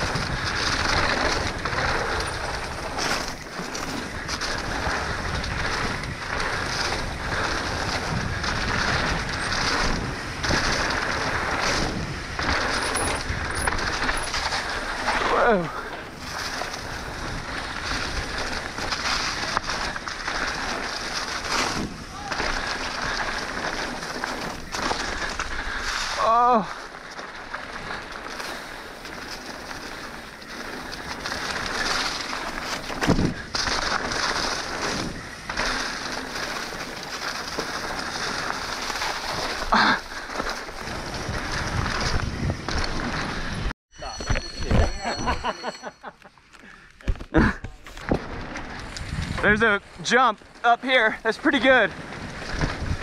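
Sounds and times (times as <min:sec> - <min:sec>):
bike tyres on dirt trail: 0:00.0 - 0:53.0
trail rattle: 0:00.0 - 0:53.0
wind on microphone: 0:40.8 - 0:43.7.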